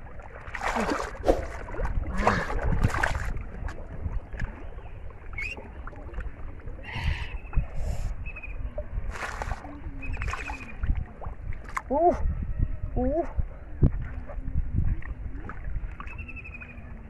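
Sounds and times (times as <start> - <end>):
water splashing and sloshing: 0.0 - 12.4, 13.3 - 17.0.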